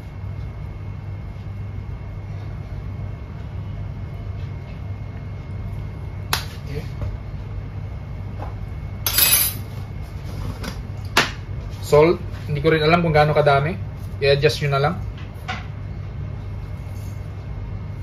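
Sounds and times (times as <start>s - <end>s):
steady low hum: 0.0s - 18.0s
utensils clattering: 9.1s - 9.6s.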